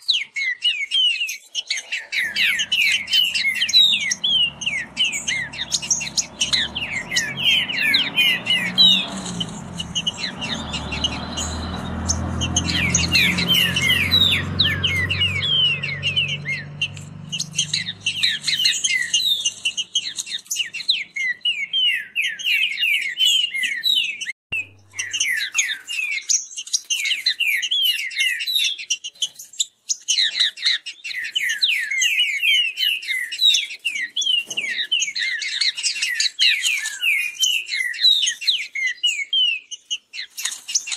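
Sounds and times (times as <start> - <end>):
birds singing fast song: 0.0 - 40.9
low rumble: 2.2 - 18.6.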